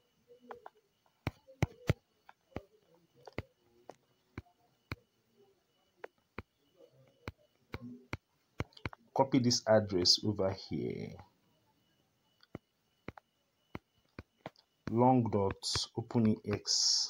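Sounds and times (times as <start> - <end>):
fingers tapping on touchscreen: 0.4 - 5.1, 6.0 - 9.1, 12.4 - 16.7.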